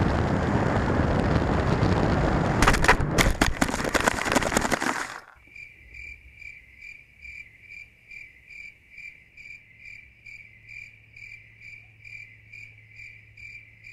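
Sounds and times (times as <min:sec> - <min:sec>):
crickets chirping: 0:04.1 - 0:13.9.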